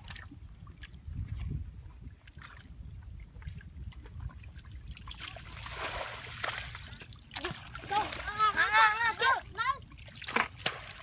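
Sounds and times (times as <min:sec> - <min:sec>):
wind rumble on microphone: 0:00.0 - 0:10.0
hands splashing in muddy water: 0:10.0 - 0:11.0.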